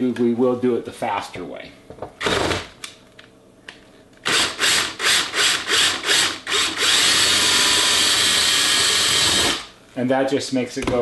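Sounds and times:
cordless drill pulsing and running: 2.2s - 2.6s, 4.2s - 9.7s.

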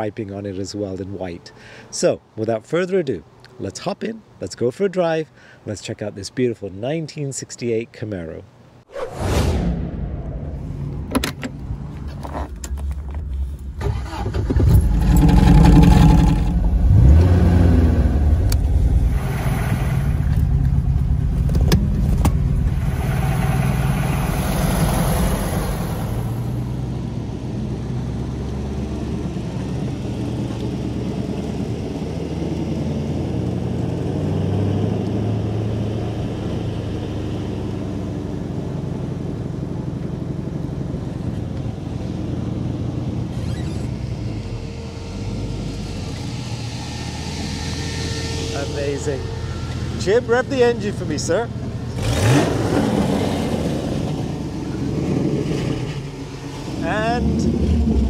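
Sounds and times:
car engine starting and idling: 10.2s - 58.0s
car door opening and shutting: 11.0s - 16.5s, 21.3s - 22.6s, 43.3s - 44.2s.

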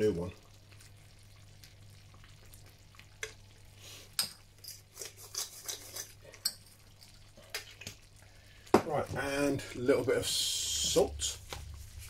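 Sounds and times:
spoon scraping a pan: 4.1s - 6.8s.

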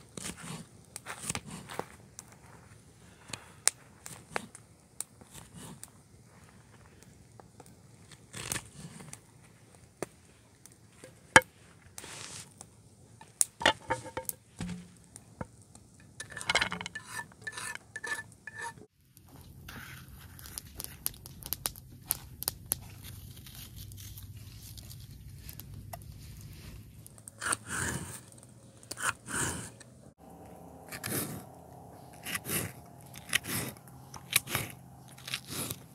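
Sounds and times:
handling scrapes and knocks: 13.2s - 15.2s, 16.0s - 18.9s
steady low hum: 30.1s - 35.9s.

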